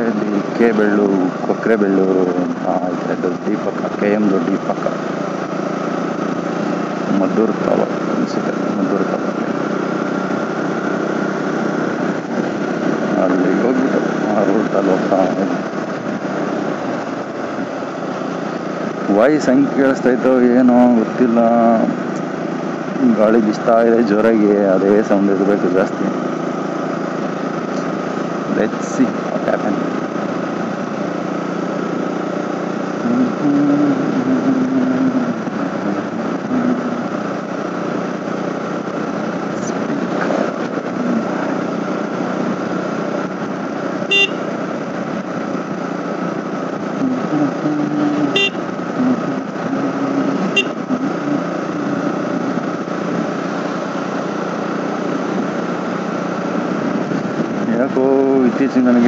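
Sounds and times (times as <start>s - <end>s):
motorcycle engine running: 0.0s - 59.0s
wind rush on microphone: 55.2s - 57.8s.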